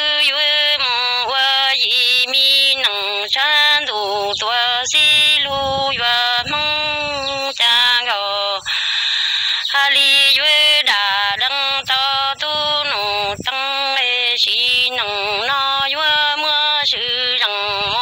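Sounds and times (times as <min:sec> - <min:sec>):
person singing: 0:00.0 - 0:18.0
breathy hiss: 0:08.6 - 0:09.8.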